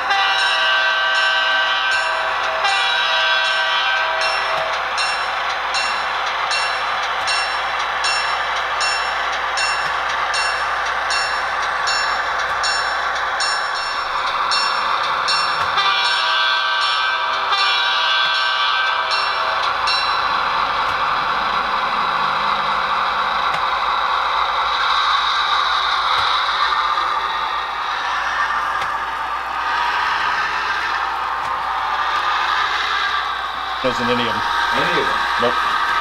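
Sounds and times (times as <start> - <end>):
locomotive horn: 0.0 - 4.7, 15.7 - 19.6
locomotive bell ringing: 0.0 - 23.0
locomotive running noise: 0.0 - 36.0.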